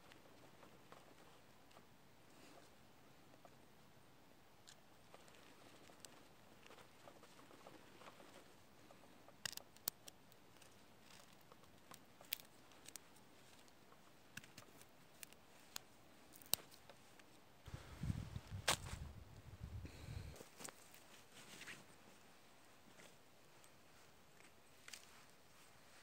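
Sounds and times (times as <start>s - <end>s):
knife carving wooden stick: 9.3s - 17.0s.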